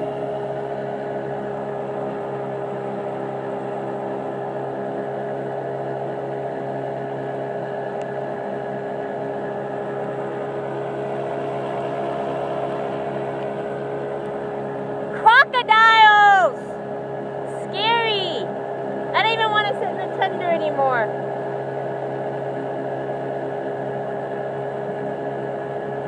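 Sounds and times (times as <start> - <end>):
boat motor humming: 0.0 - 26.0.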